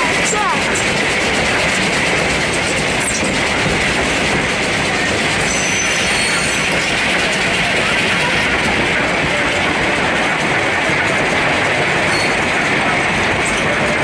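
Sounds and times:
train wheels running on rails: 0:00.0 - 0:14.0
high wheel squeals: 0:05.3 - 0:07.0, 0:12.0 - 0:12.5.

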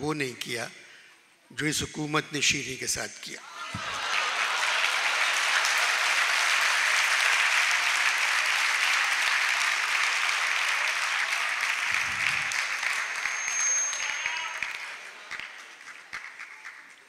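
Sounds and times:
audience applauding: 0:03.6 - 0:17.0.

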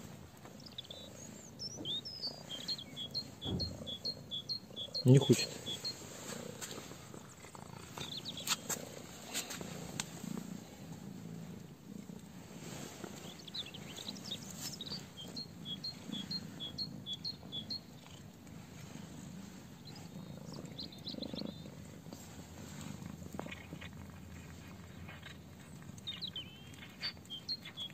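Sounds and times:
cats purring: 0:00.0 - 0:27.9
faint high chirps: 0:00.6 - 0:06.2, 0:13.2 - 0:18.2.

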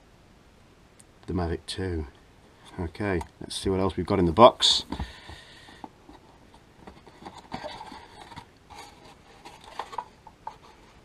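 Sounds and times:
paper and cardboard rustling: 0:04.6 - 0:11.0.

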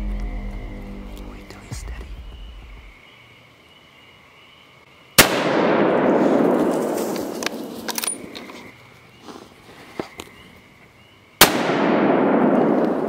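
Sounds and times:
gunshot with rolling echo: 0:05.2 - 0:08.3, 0:11.4 - 0:13.0.

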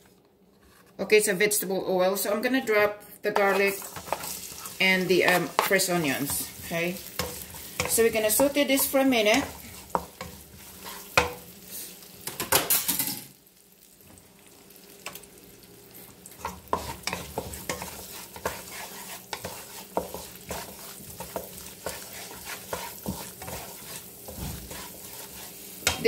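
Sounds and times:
wooden spatula scraping pan: 0:02.6 - 0:12.0, 0:16.4 - 0:26.0
onion sizzling in oil: 0:03.4 - 0:26.0.

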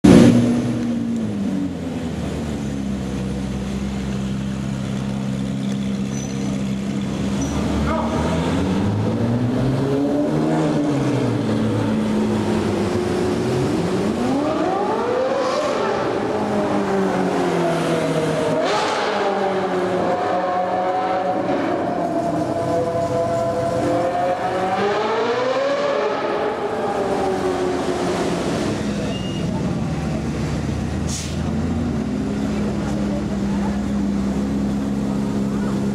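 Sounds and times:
car engine revving hard: 0:07.3 - 0:29.0.

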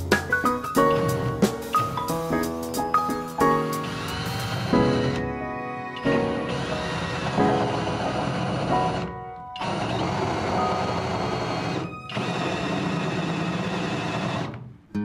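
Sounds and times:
drill cutting through wood: 0:03.7 - 0:05.3, 0:06.0 - 0:14.6.

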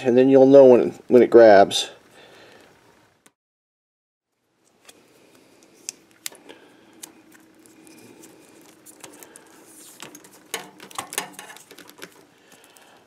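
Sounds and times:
wire nuts clicking and rattling: 0:10.0 - 0:12.8.

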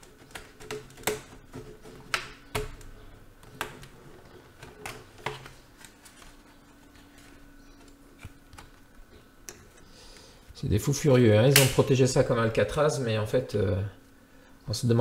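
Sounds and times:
plastic clips snapping loose: 0:11.5 - 0:11.9.

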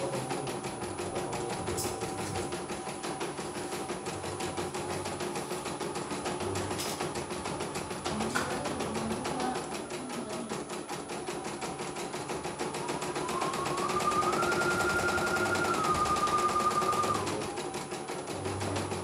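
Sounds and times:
motor whine: 0:12.9 - 0:17.4.

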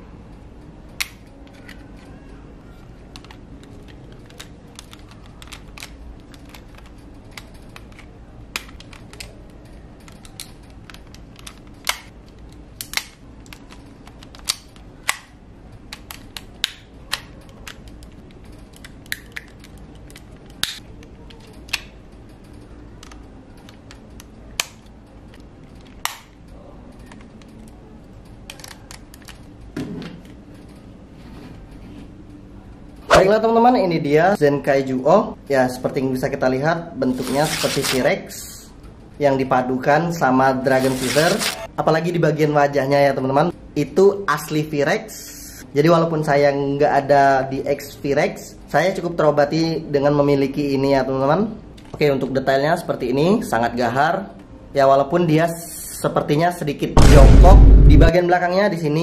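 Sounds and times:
plastic toy parts clicking: 0:03.1 - 0:15.3, 0:15.9 - 0:27.7.

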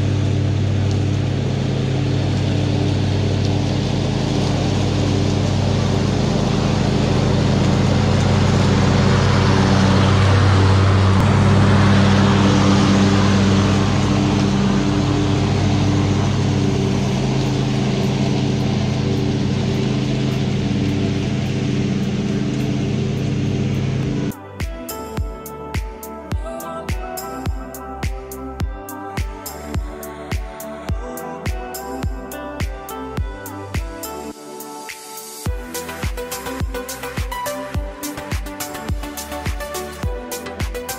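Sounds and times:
mower blades cutting grass: 0:00.0 - 0:26.4, 0:35.4 - 0:40.9
riding mower engine running: 0:00.0 - 0:40.9.

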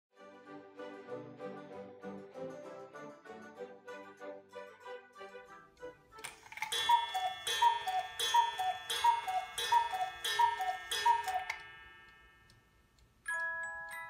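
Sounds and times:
cuckoo clock calls: 0:06.2 - 0:12.7.

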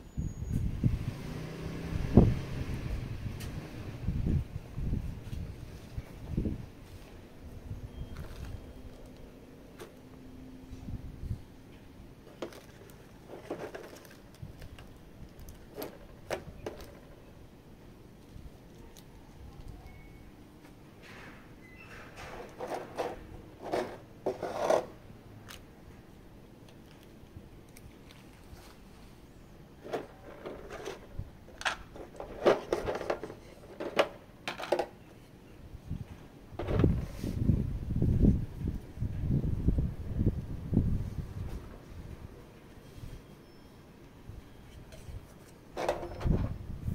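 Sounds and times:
packaging rustling: 0:12.3 - 0:16.9.

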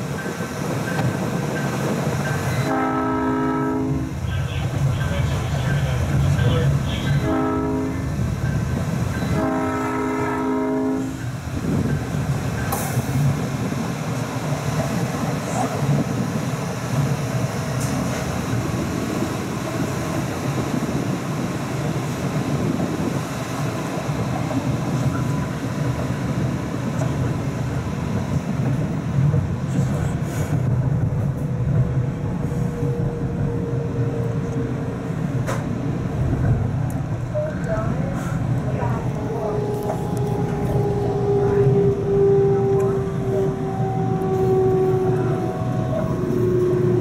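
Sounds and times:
train wheels rumbling on rail: 0:00.0 - 0:47.0.

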